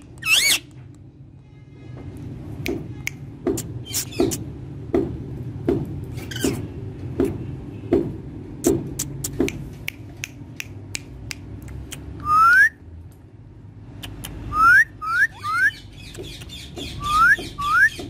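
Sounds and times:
parakeet sharp clicks: 13.9s - 14.5s
parakeet rising whistles: 14.5s - 15.8s, 17.0s - 18.0s.

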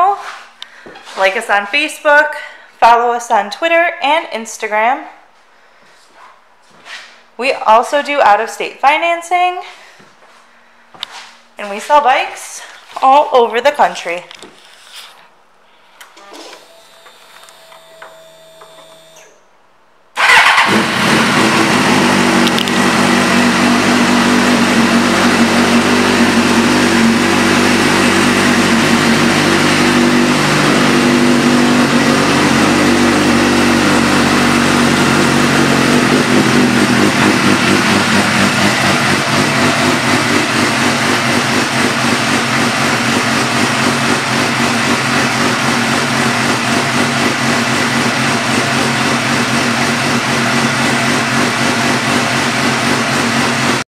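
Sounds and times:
motorcycle engine idling: 20.2s - 53.8s.

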